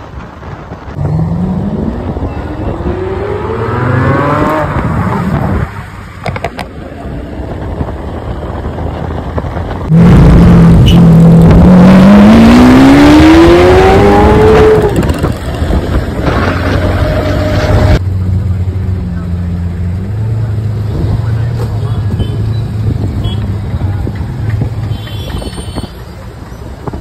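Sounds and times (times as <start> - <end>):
sports car engine accelerating: 1.0 - 5.7, 8.7 - 15.7.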